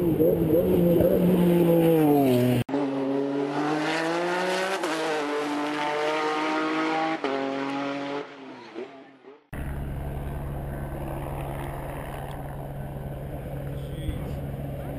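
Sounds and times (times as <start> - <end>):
race car engine revving: 0.0 - 8.4.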